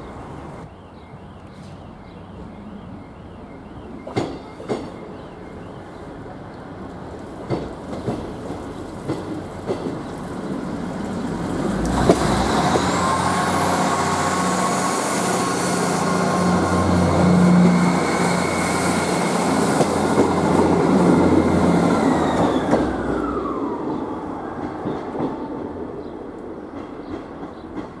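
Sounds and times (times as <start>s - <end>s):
diesel train engines whining: 0.0s - 28.0s
train wheel clicks on track: 9.0s - 10.1s, 11.8s - 12.9s.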